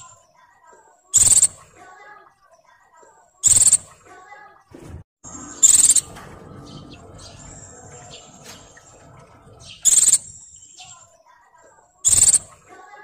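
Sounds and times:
bird chattering: 0:01.1 - 0:01.7, 0:03.4 - 0:03.9, 0:05.5 - 0:11.2, 0:12.0 - 0:13.0
shrill bird calls: 0:01.2 - 0:01.6, 0:03.4 - 0:03.9, 0:05.3 - 0:09.0, 0:09.6 - 0:11.0, 0:12.0 - 0:12.6.

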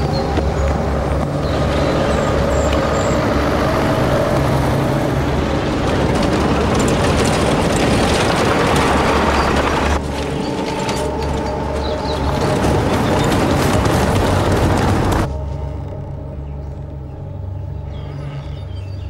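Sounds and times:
vehicle rumbling: 0:00.0 - 0:19.0.

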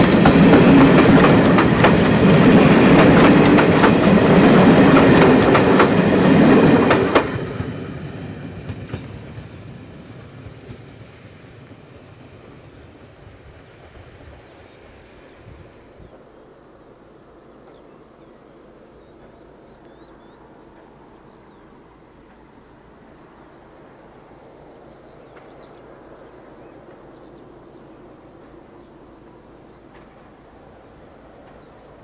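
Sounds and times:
birds chirping: 0:08.6 - 0:32.0.

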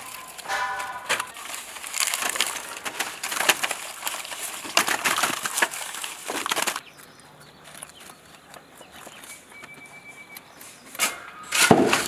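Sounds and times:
bamboo scraps rustling and clattering: 0:00.0 - 0:07.0, 0:10.6 - 0:12.0.

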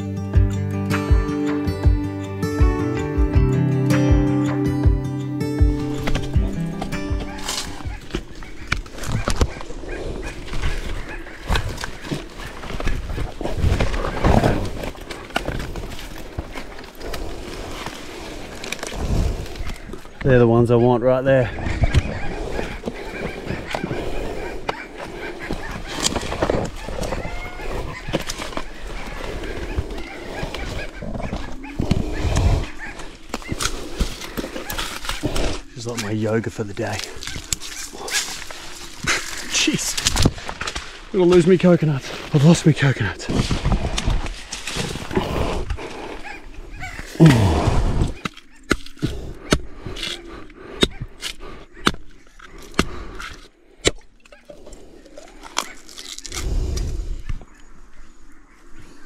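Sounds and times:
rustling and handling: 0:05.7 - 0:20.2, 0:22.5 - 0:47.4
fibrous husk tearing: 0:05.8 - 0:20.2, 0:22.2 - 0:41.2, 0:43.2 - 0:57.0
man grunting and breathing hard: 0:47.2 - 0:48.2.

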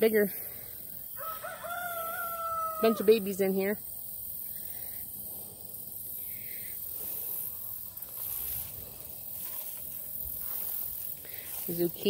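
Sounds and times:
steady high hiss: 0:00.0 - 0:12.0
leaves and stalks rustling: 0:06.2 - 0:12.0
footsteps through plants: 0:08.0 - 0:12.0.

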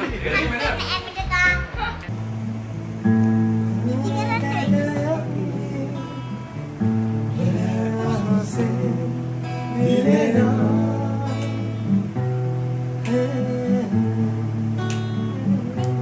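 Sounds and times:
acoustic guitar strumming chords: 0:00.0 - 0:16.0
man singing: 0:03.7 - 0:06.6, 0:07.3 - 0:12.2, 0:13.0 - 0:16.0.

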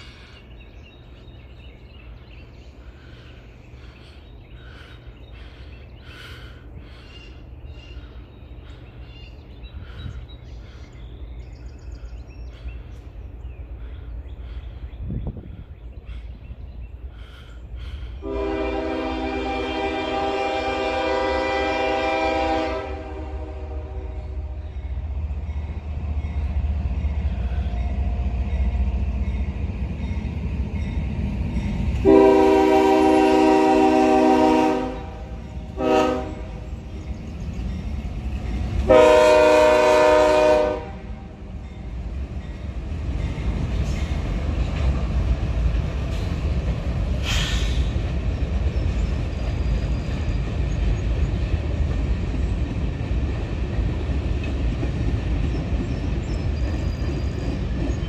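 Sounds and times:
low rumble of train: 0:00.0 - 0:58.0
locomotive air horn: 0:18.2 - 0:24.6, 0:32.0 - 0:36.6, 0:38.8 - 0:41.3.

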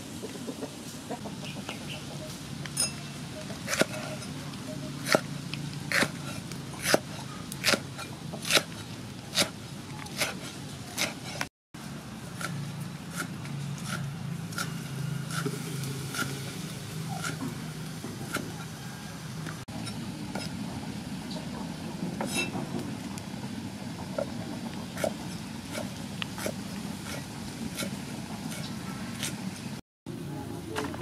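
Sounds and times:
cleaver chopping on wooden board: 0:05.0 - 0:05.3, 0:05.9 - 0:08.8, 0:11.0 - 0:11.2.

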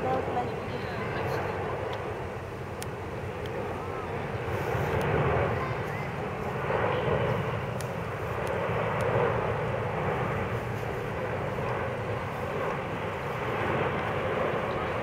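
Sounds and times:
jet engines passing overhead: 0:00.0 - 0:15.0.

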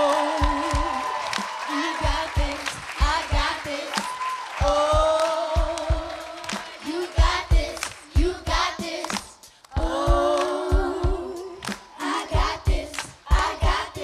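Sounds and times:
woman singing: 0:00.0 - 0:08.8, 0:09.7 - 0:14.0
hand claps: 0:00.0 - 0:09.8, 0:11.6 - 0:12.0, 0:12.9 - 0:13.3
children's choir singing: 0:00.0 - 0:14.0
low thumping beat: 0:02.0 - 0:03.6, 0:04.6 - 0:14.0.

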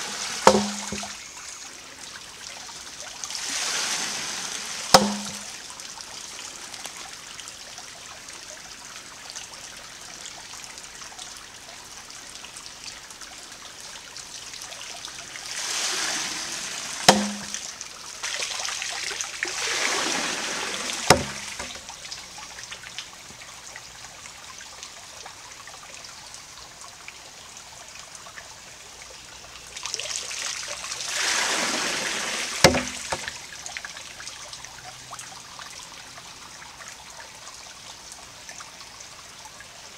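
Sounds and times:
rush of water spilling: 0:00.0 - 0:23.0, 0:29.7 - 0:36.7
creek trickling: 0:00.0 - 0:39.9
wooden pestle knocking on stone: 0:21.1 - 0:21.8, 0:32.6 - 0:33.2.

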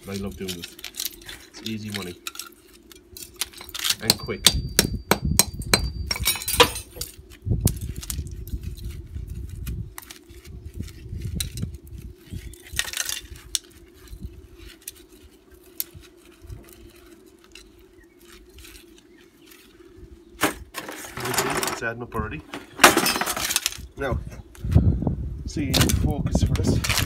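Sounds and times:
rustling of wire windings: 0:00.0 - 0:04.1, 0:06.1 - 0:20.0, 0:20.7 - 0:24.0
hammer blows on concrete: 0:04.0 - 0:06.8
clinks of broken shards: 0:05.9 - 0:07.2.

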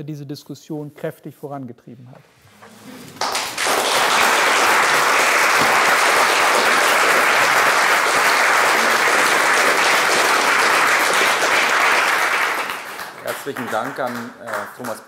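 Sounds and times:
crowd applauding: 0:03.0 - 0:15.0.

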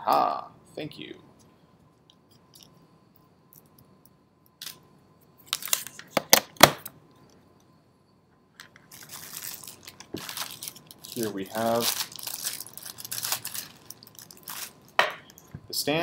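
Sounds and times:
plastic bags crinkling: 0:05.5 - 0:06.2, 0:08.6 - 0:15.5.

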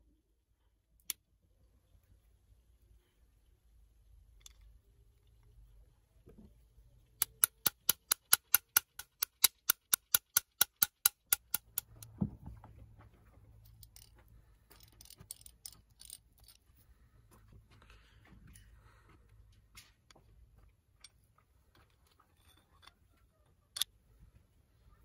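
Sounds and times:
hand drill gears clicking: 0:07.2 - 0:12.1, 0:13.8 - 0:14.1, 0:14.7 - 0:16.6
faint handling noises: 0:11.7 - 0:25.0.

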